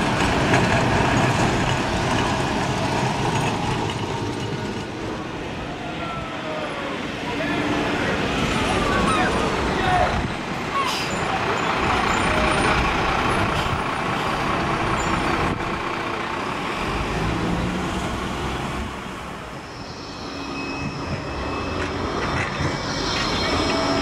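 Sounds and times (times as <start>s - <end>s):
electric tram whine: 0.0s - 24.0s
traffic rumble: 0.0s - 24.0s.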